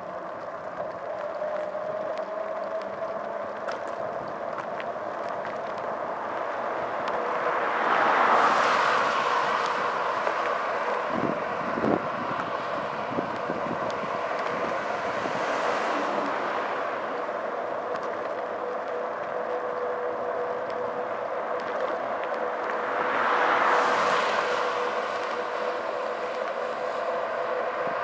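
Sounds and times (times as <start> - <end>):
wind noise on microphone: 0.8 - 28.0
car passing close by: 6.8 - 17.4, 22.4 - 27.2.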